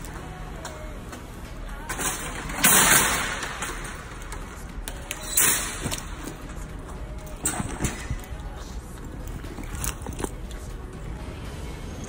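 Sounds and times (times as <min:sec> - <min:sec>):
shopping cart rattling: 0:01.8 - 0:06.7, 0:07.3 - 0:10.6.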